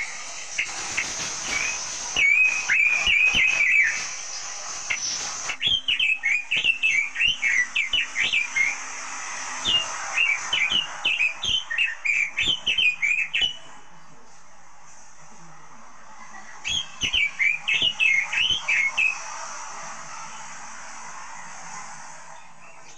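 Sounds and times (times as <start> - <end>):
bird singing whistled notes: 0.0 - 13.9, 16.6 - 19.4
songbird rapid whistles: 0.0 - 13.9, 16.3 - 22.9.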